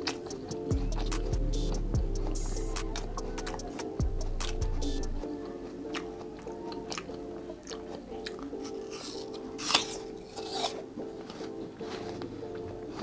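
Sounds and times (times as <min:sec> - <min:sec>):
apple crunching: 0:05.2 - 0:13.0.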